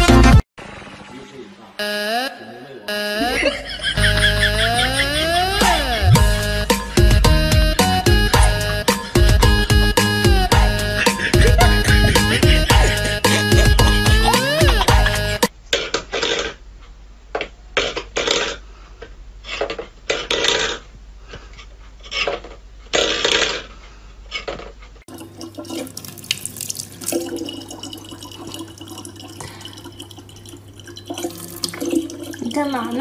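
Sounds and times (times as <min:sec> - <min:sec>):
tap water running into plastic bottle: 0:25.1 - 0:33.0.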